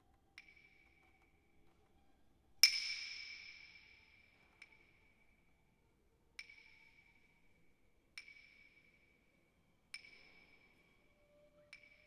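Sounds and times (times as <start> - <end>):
soft bell-like pings: 2.6 - 5.8, 6.4 - 7.6, 8.2 - 12.0.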